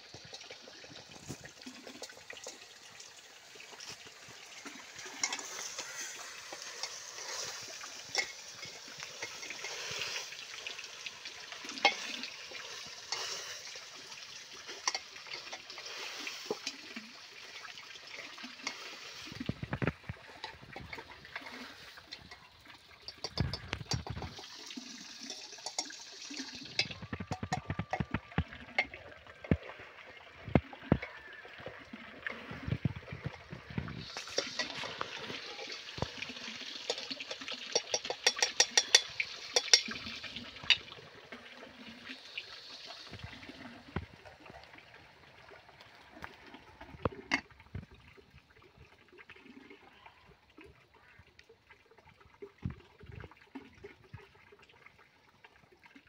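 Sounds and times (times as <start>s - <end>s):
chicken sizzling in a pot: 0.0s - 28.4s, 34.0s - 44.0s
utensil scraping a pot: 3.8s - 10.4s, 11.8s - 13.8s, 23.0s - 24.5s, 25.1s - 28.2s, 34.0s - 36.1s, 36.8s - 40.8s.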